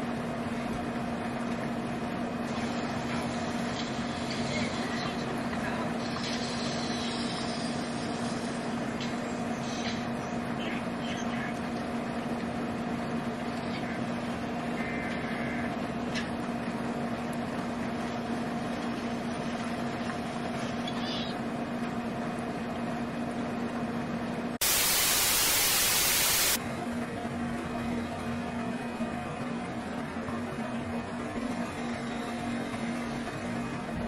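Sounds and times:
background hiss: 0:24.6 - 0:26.6
tv static white noise burst: 0:24.6 - 0:26.6.

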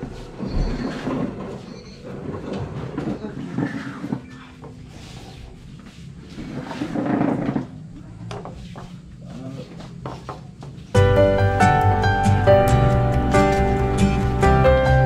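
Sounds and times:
loud background music: 0:11.0 - 0:15.0.

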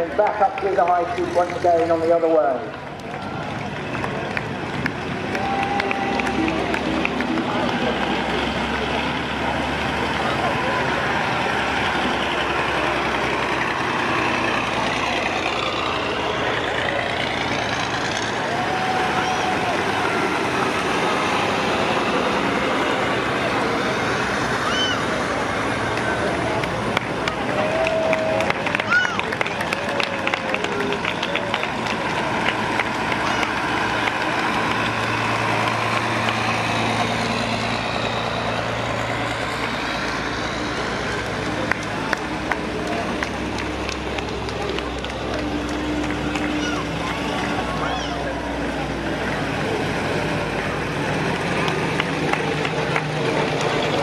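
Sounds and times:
heavy truck diesel engine: 0:00.0 - 0:54.0
other vehicle engines: 0:00.0 - 0:54.0.

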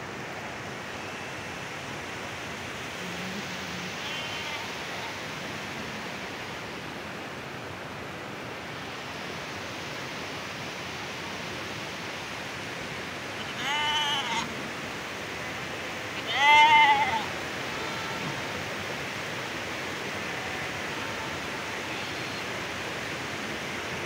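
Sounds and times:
stream water rushing: 0:00.0 - 0:24.0
goat or sheep bleating: 0:04.0 - 0:05.2, 0:13.4 - 0:14.6, 0:16.2 - 0:18.6, 0:20.3 - 0:22.5.

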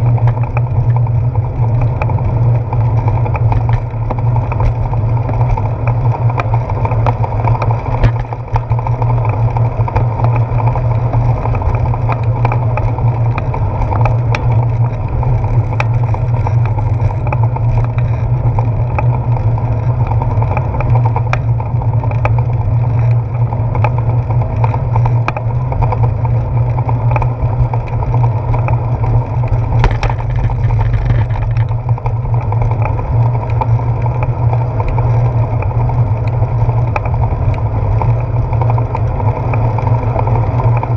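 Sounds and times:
bicycle rolling on wet path: 0:00.0 - 0:40.9
wind noise: 0:27.4 - 0:33.4.

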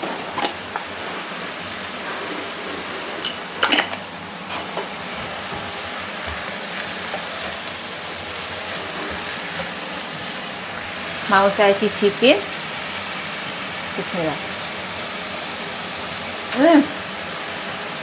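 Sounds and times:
vegetables sizzling in frying pan: 0:00.0 - 0:18.0
spatula stirring in pan: 0:04.4 - 0:11.4.

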